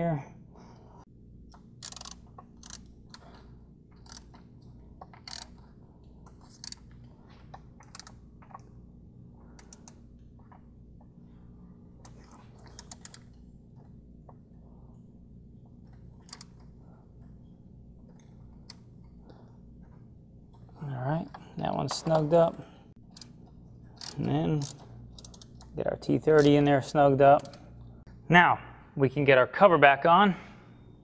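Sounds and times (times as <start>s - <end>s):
steady low hum: 0.0s - 31.0s
ratchet clicking: 1.5s - 3.3s, 3.9s - 7.0s, 7.8s - 8.6s, 9.6s - 10.0s, 12.0s - 13.4s, 16.2s - 16.7s, 23.1s - 25.7s, 27.4s - 27.7s.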